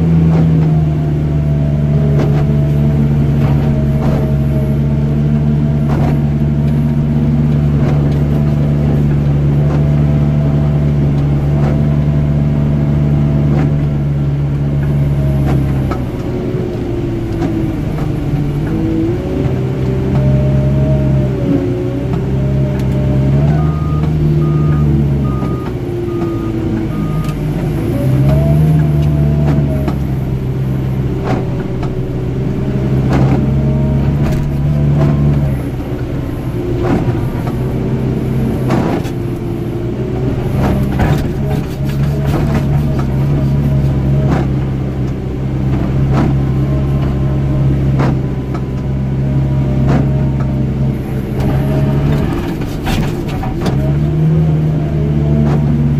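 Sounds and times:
diesel engine working: 0.0s - 55.9s
reversing alarm beeps: 23.5s - 27.5s.

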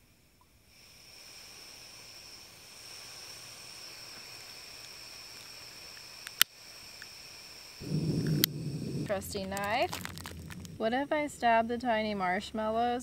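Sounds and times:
gas hissing from stove burner: 0.0s - 13.0s
lighter igniter click: 8.2s - 8.6s.

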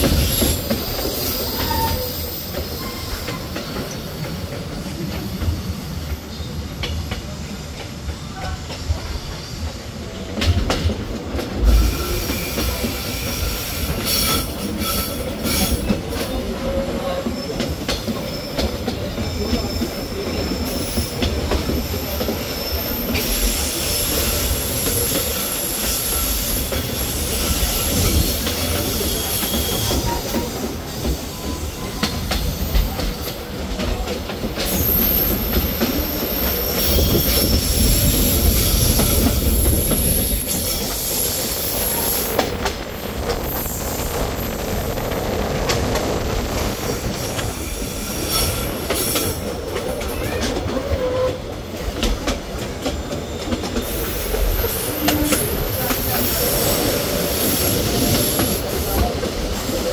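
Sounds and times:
train wheels clattering on rail: 0.0s - 59.9s
high-pitched wheel squeal: 0.1s - 4.0s, 21.8s - 33.2s.

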